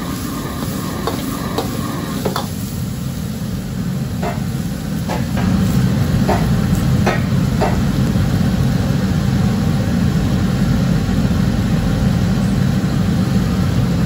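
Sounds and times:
food sizzling in wok: 0.0s - 9.6s
gas burner rumble: 0.0s - 14.0s.

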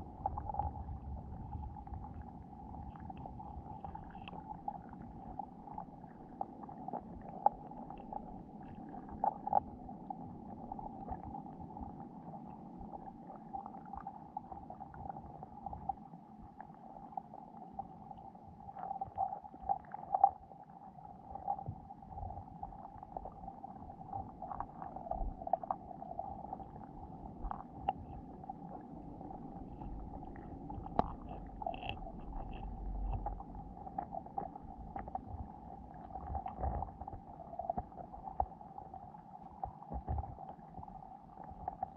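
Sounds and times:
muffled underwater hum: 0.0s - 41.9s
small underwater clicks and taps: 2.9s - 4.6s, 27.4s - 28.3s, 29.6s - 38.6s, 39.5s - 40.9s
low rumble: 29.0s - 37.2s.

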